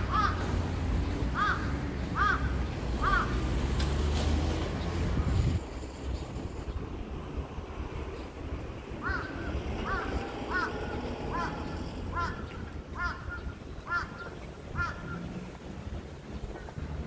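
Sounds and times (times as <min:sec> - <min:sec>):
crow cawing: 0:00.0 - 0:00.5, 0:01.4 - 0:03.4, 0:09.0 - 0:15.2.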